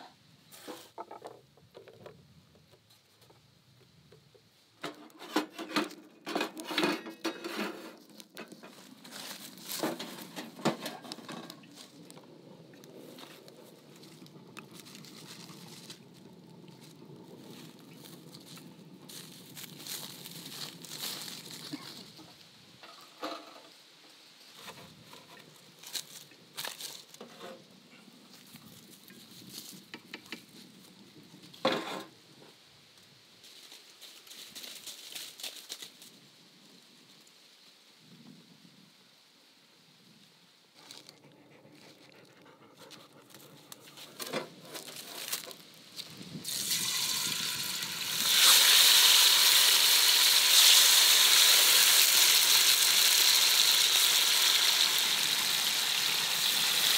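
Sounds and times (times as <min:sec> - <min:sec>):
wood fire crackling: 0:07.9 - 0:22.9.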